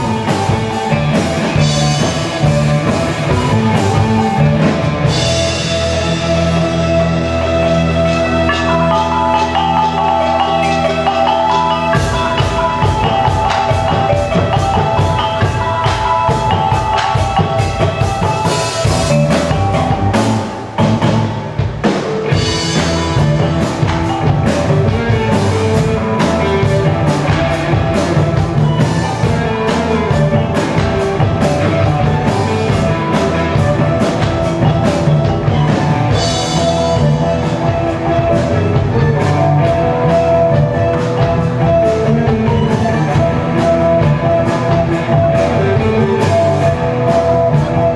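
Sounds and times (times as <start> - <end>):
rock band playing: 0.0 - 47.9
traditional drums: 0.0 - 47.9.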